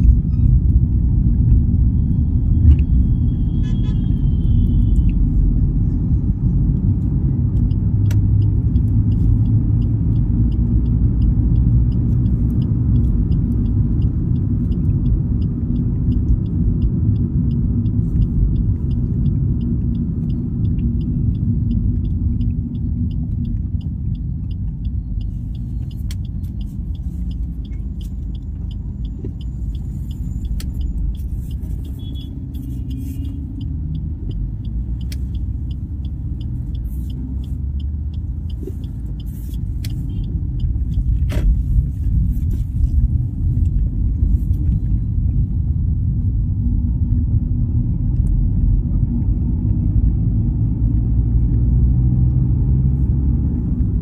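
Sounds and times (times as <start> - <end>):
engine and road rumble: 0.0 - 54.0
faint ticking: 7.6 - 45.9.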